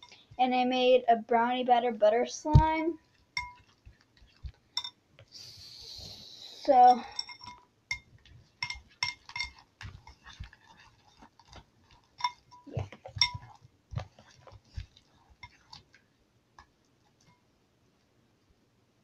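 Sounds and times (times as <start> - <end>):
spoon clinking against glass: 3.4 - 3.7, 4.8 - 5.0, 6.8 - 9.6, 12.1 - 13.6.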